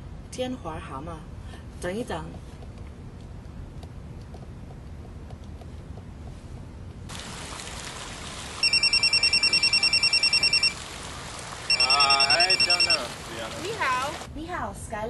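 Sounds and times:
telephone ringing: 8.6 - 10.8, 11.7 - 13.1.

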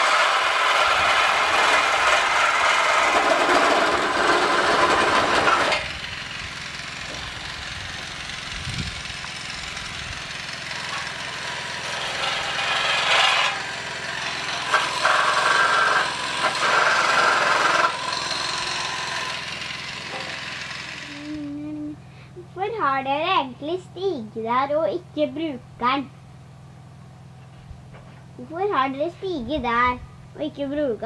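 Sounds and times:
power tool cutting pipe: 0.0 - 21.6.

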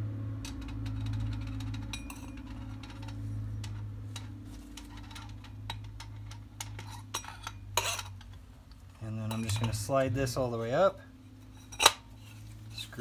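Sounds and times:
low hum: 0.0 - 12.8
metal parts clicking: 0.4 - 8.4.

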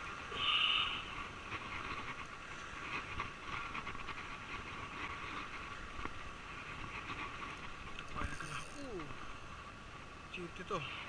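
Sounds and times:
surf washing on rocks: 0.0 - 11.0
fishing reel gears chattering: 8.0 - 9.1.

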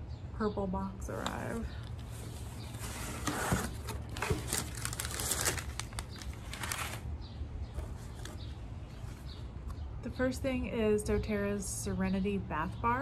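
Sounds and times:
paper packaging crinkling: 2.0 - 7.2.

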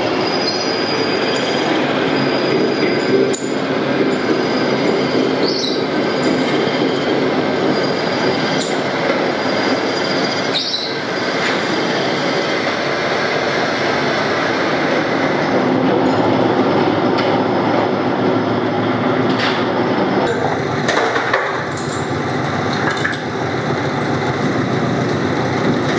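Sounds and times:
metal lathe cutting steel: 0.0 - 16.8.

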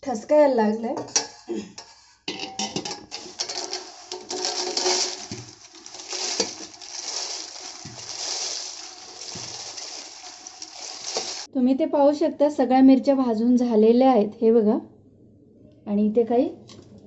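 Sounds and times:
dried chillies rustling onto metal: 2.4 - 11.5.

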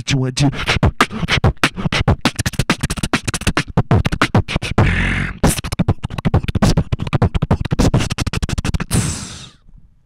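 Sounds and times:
person beatboxing into microphone: 0.0 - 9.6.

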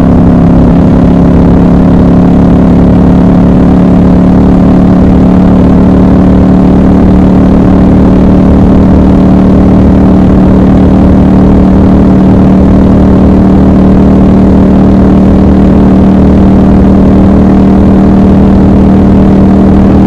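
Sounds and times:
motorcycle engine cruising: 0.0 - 20.0.

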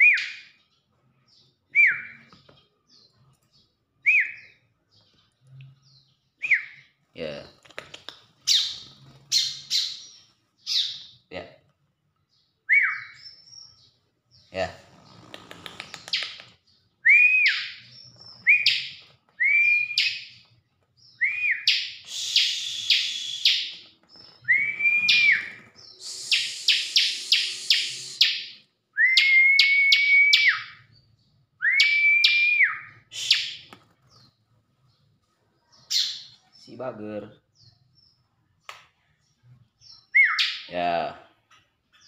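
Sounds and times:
bird singing with sharp chips: 0.0 - 11.4, 12.2 - 42.0.

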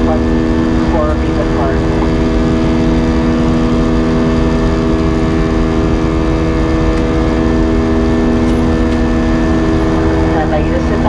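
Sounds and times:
airplane cabin drone: 0.0 - 11.0.

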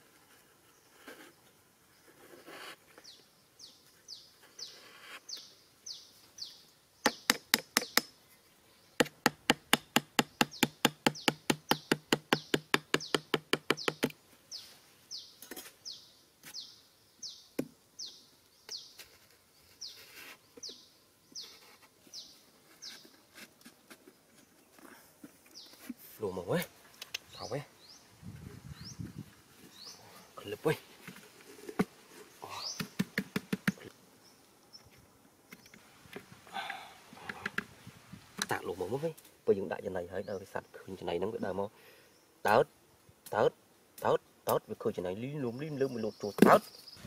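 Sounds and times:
bird chirping: 2.9 - 23.4, 24.0 - 30.8, 32.1 - 35.9, 43.4 - 47.0.

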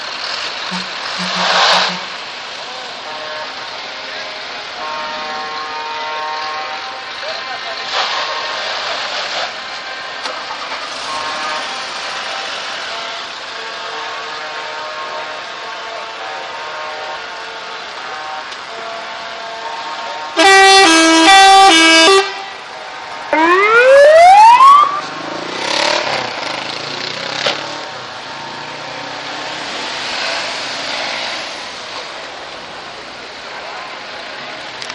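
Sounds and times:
passing traffic: 0.0 - 34.9
musical air horn: 0.7 - 2.3, 4.8 - 7.0, 10.9 - 12.0, 16.0 - 22.6
siren wailing: 23.3 - 25.2.

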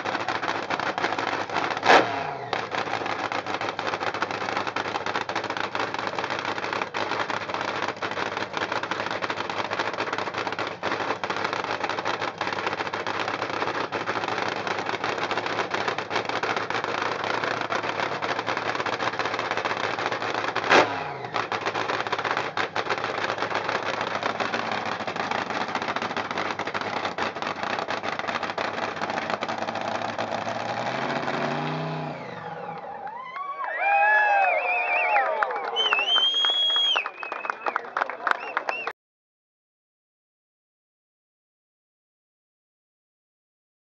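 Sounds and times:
dragster engine running very loud: 0.0 - 32.9
sharp crack: 0.0 - 32.9.

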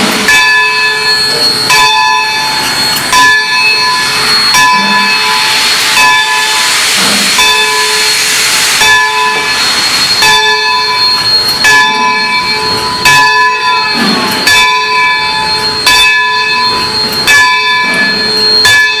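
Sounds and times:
steam locomotive bell ringing: 0.0 - 19.0
falling squeal: 0.8 - 19.0.

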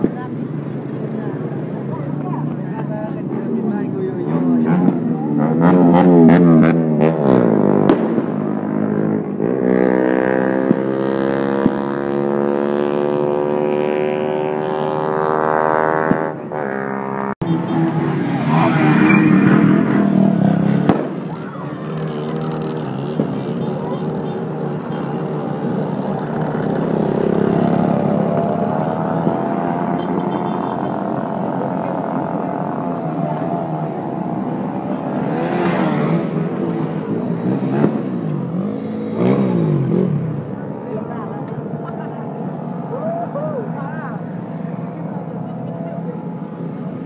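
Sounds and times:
engine revving: 4.2 - 40.6.

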